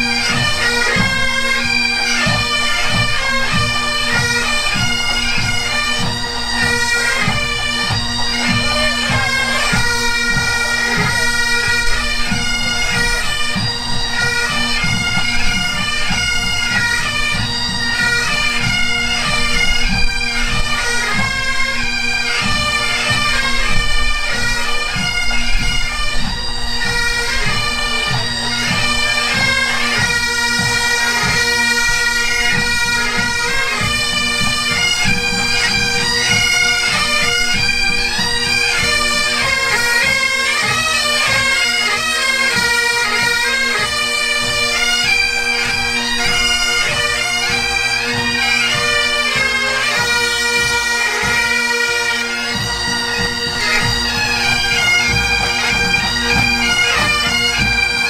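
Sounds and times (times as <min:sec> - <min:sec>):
drumming: 0:00.0 - 0:21.6, 0:25.0 - 0:58.0
bagpipes playing a tune: 0:00.0 - 0:58.0.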